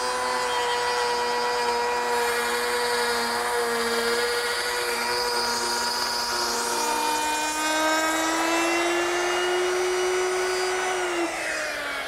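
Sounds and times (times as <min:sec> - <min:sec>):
electric router whining: 0:00.0 - 0:12.0
router motor spinning down: 0:00.0 - 0:12.0.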